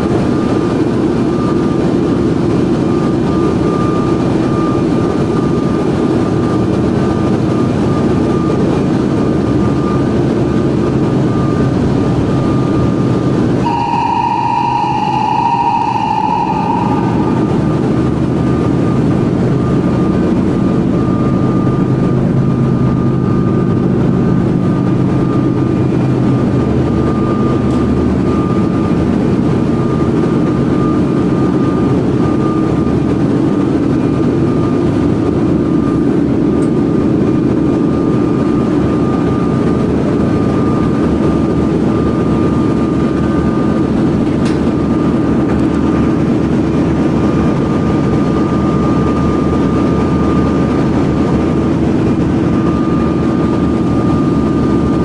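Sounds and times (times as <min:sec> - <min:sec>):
engine room machinery drone: 0:00.0 - 0:55.0
steady high whine: 0:00.0 - 0:55.0.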